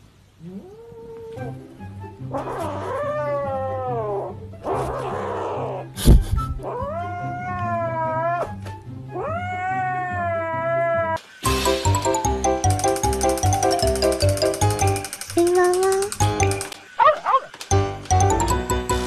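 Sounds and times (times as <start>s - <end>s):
background music: 1.4s - 10.5s, 11.2s - 19.0s
kitten yowling: 2.3s - 5.9s, 6.6s - 11.2s.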